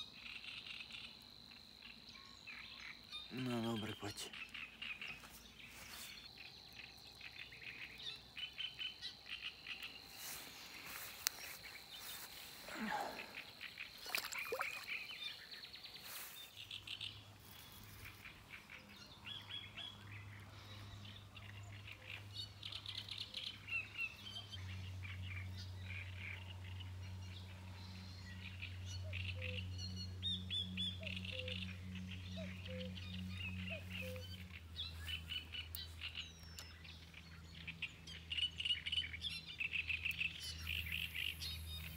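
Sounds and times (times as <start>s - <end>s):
small birds chirping: 0.0s - 41.9s.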